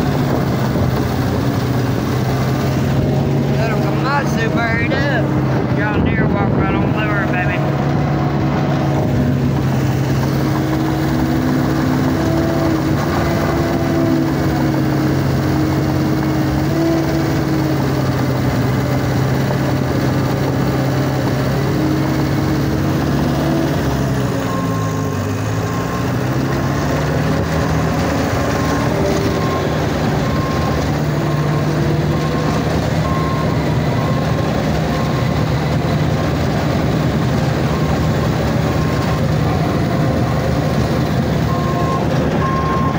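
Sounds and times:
diesel engine running: 0:00.0 - 0:42.9
back-up alarm beeping: 0:41.5 - 0:42.9.

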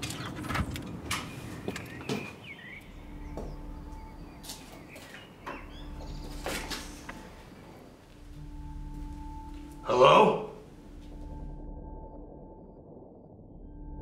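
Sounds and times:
low steady hum: 0:02.7 - 0:14.0
door squeak: 0:05.4 - 0:07.4.

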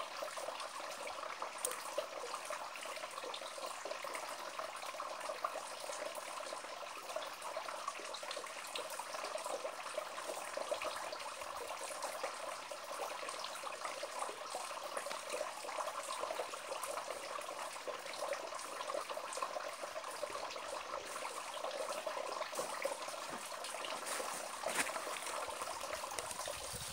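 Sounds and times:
water trickling onto stones: 0:00.0 - 0:26.9.

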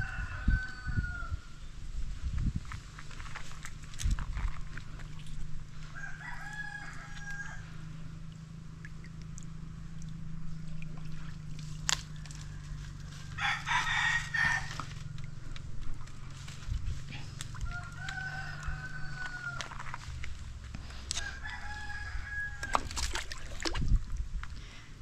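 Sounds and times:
rooster crowing: 0:00.0 - 0:01.5, 0:05.9 - 0:07.9, 0:12.3 - 0:15.2, 0:17.6 - 0:20.1, 0:21.1 - 0:23.0
steady low hum: 0:01.0 - 0:25.0.

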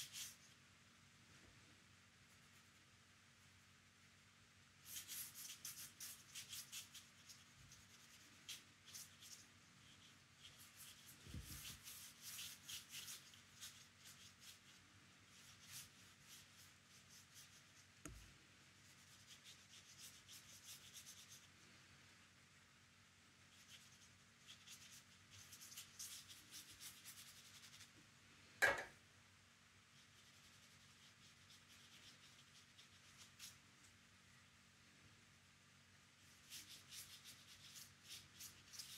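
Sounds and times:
paintbrush scratching on paper: 0:00.0 - 0:00.6, 0:04.8 - 0:21.6, 0:23.4 - 0:27.9, 0:29.8 - 0:33.7, 0:36.2 - 0:38.9
short sharp knock: 0:28.6 - 0:28.9.

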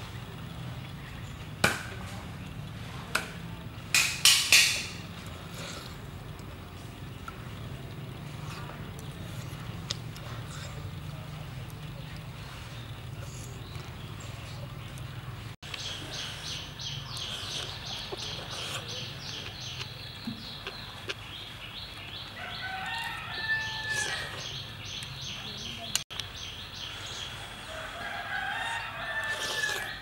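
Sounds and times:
steady low hum: 0:04.8 - 0:22.4
rooster crowing: 0:22.4 - 0:24.6, 0:27.7 - 0:30.0.

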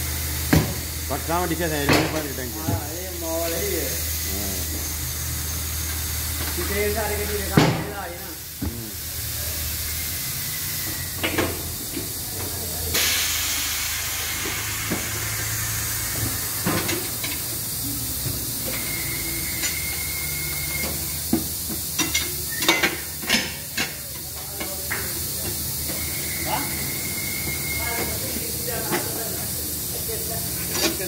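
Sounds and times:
compressed air hissing: 0:00.0 - 0:12.3, 0:12.9 - 0:23.7
burst of air: 0:12.9 - 0:16.7.

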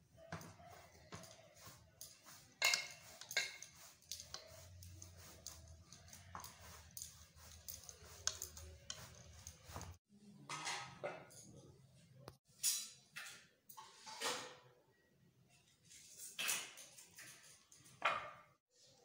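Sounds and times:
metal spoon scraping steel plate: 0:01.2 - 0:10.0.

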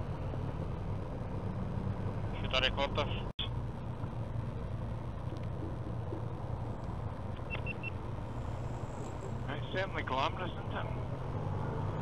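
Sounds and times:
motorcycle engine rumble: 0:00.0 - 0:12.0
road noise: 0:00.0 - 0:12.0
wind noise: 0:03.6 - 0:09.7.

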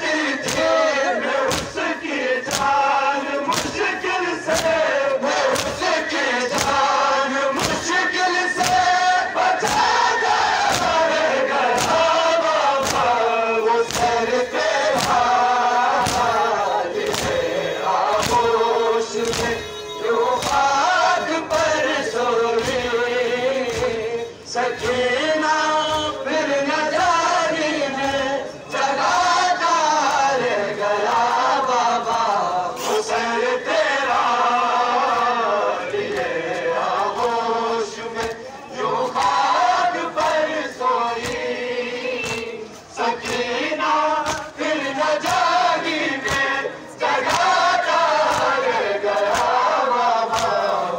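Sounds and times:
crowd of men chanting: 0:00.0 - 0:50.9.

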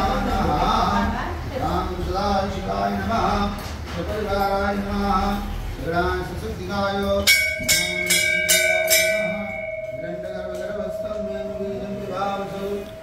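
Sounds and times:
metal bell ringing: 0:07.2 - 0:13.0
voices: 0:07.3 - 0:13.0.

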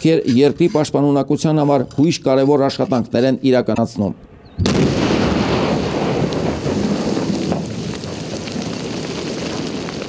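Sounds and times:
demolition blast rumble: 0:04.6 - 0:10.0
stones and soil falling: 0:04.8 - 0:10.0.

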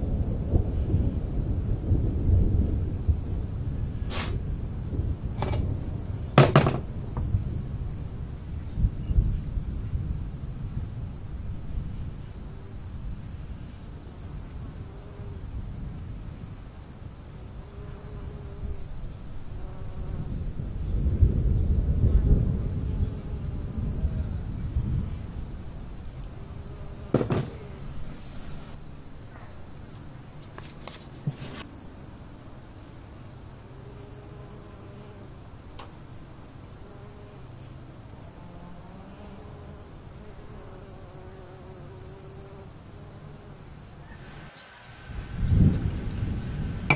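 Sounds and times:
insects trilling: 0:00.0 - 0:46.9
metal hubs knocking on table: 0:06.4 - 0:07.3, 0:27.1 - 0:27.6
low rumble: 0:44.7 - 0:46.9.

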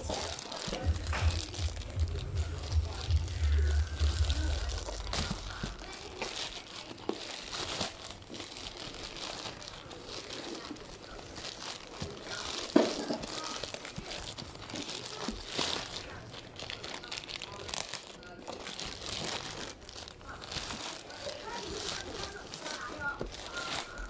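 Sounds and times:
plastic bag crinkling: 0:00.0 - 0:24.0.

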